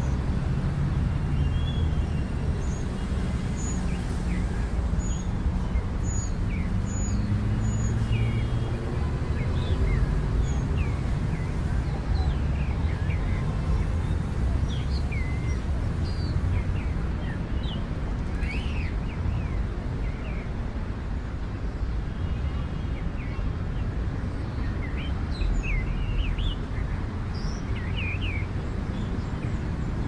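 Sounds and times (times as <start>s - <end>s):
small birds chirping: 0.9s - 20.6s, 22.9s - 30.0s.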